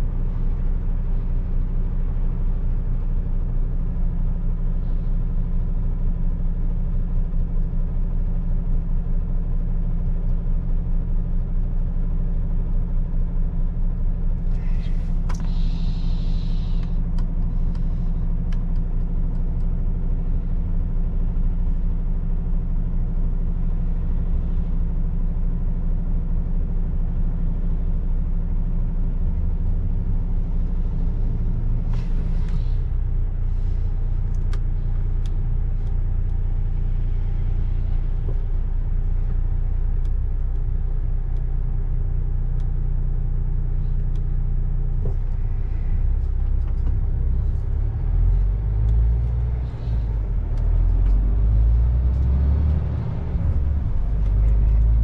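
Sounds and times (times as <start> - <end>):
truck diesel engine rumble: 0.0 - 55.0
air brake hisses: 14.6 - 16.8.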